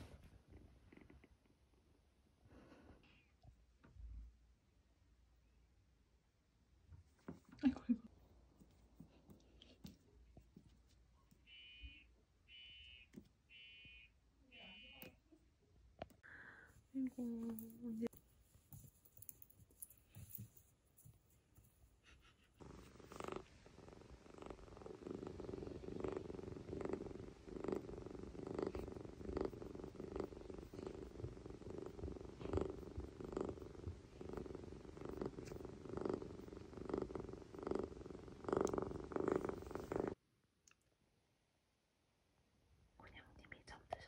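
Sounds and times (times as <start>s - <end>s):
kitten purring: 22.0s - 40.2s.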